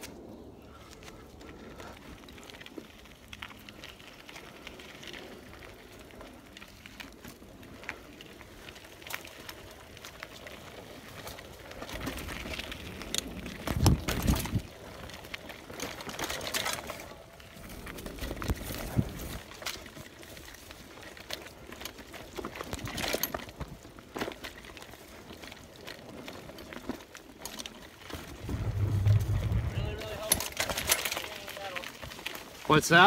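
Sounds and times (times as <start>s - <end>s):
bike clicking and rattling: 0.0s - 33.0s
bike tyres on dirt: 0.0s - 33.0s
heavy knocks and rumble: 28.4s - 30.4s.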